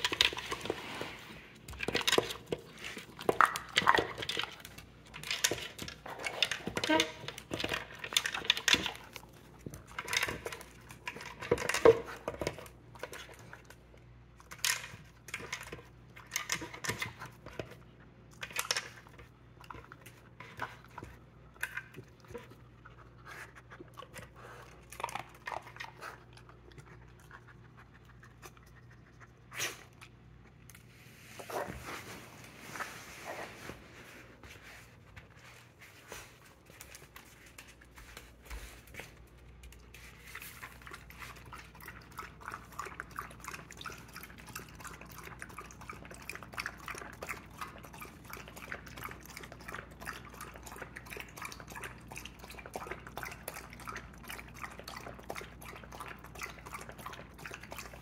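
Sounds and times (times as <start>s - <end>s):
dog crunching kibble: 0.0s - 13.8s.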